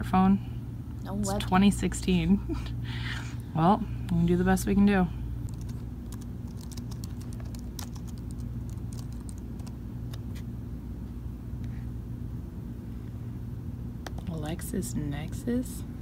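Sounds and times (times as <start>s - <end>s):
laptop keyboard typing: 5.5s - 10.2s, 14.0s - 14.3s.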